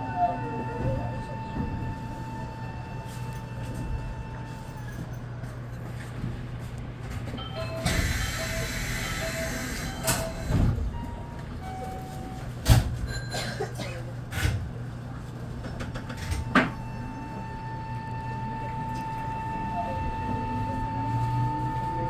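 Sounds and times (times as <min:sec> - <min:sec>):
low equipment hum: 0:09.4 - 0:22.0.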